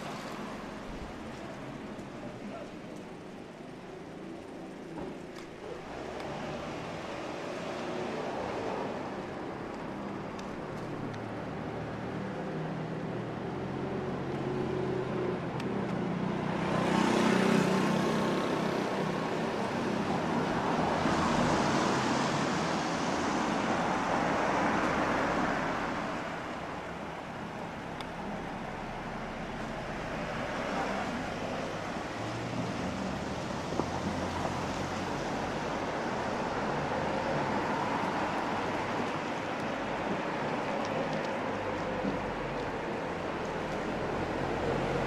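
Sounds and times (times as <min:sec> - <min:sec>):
car tyres hissing on wet road: 0:16.7 - 0:45.0.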